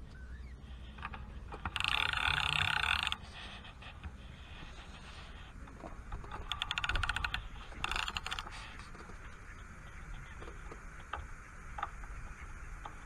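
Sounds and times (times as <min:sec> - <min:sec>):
fishing reel clicking: 0:00.9 - 0:03.3, 0:06.1 - 0:08.6.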